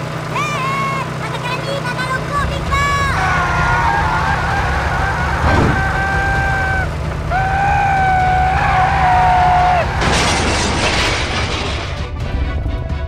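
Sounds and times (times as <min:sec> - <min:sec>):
low engine rumble: 0:00.0 - 0:13.0
rushing boom effect: 0:05.4 - 0:06.2.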